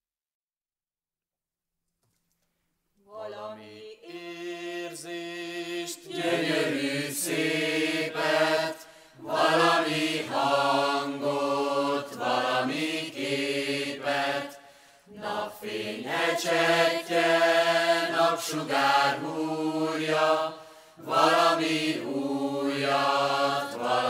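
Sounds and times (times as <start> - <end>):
voices chanting held notes: 3.1 - 24.0.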